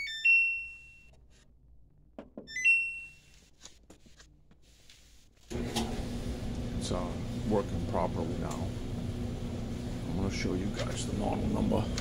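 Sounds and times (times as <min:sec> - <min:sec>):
dryer motor and blower humming: 0:05.5 - 0:12.0.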